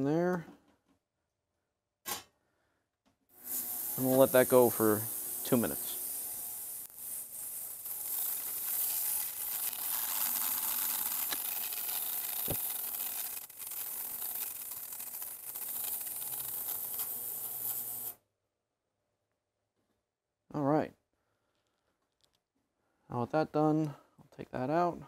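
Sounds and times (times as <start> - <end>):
ultrasonic cleaner hissing: 3.4 - 18.2.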